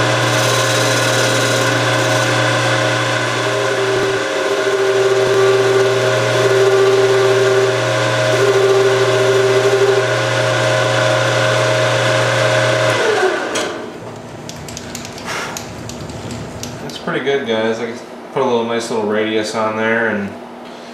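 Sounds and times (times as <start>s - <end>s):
cutting tool tone: 0.0s - 10.2s
metal lathe motor humming: 0.0s - 16.9s.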